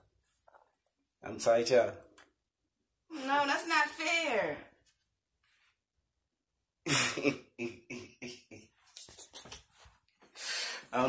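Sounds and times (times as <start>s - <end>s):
man laughing: 6.9s - 8.7s.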